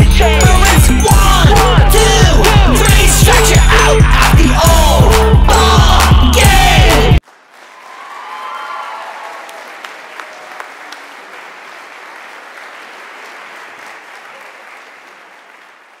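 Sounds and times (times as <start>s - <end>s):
crowd applauding and cheering: 4.8s - 16.0s
whoops: 7.7s - 11.0s.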